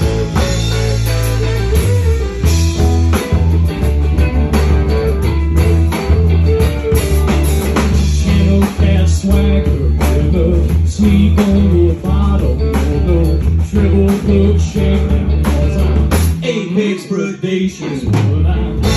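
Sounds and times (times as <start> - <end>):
drum hits: 0.0 - 12.2
live rock band playing: 0.0 - 18.9
sustained bass notes: 0.0 - 18.9.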